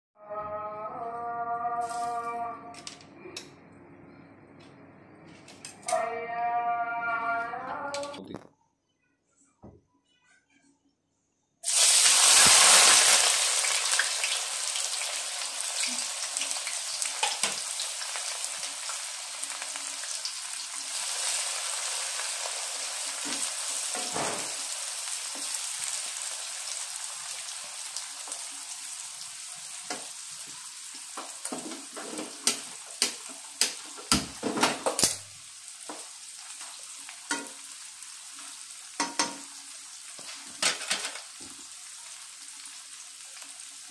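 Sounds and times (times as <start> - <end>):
onions sizzling in hot oil: 11.6 - 43.9.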